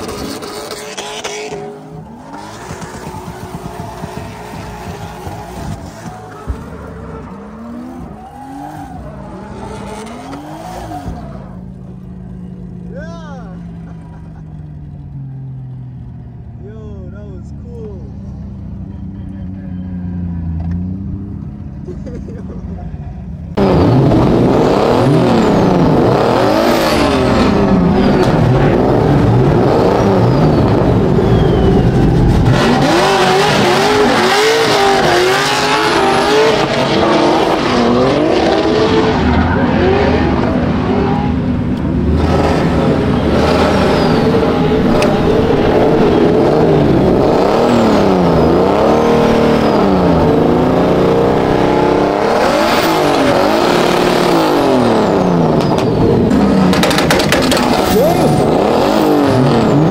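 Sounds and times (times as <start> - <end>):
car engines revving: 0.0 - 59.9
tyres screeching: 55.1 - 59.9.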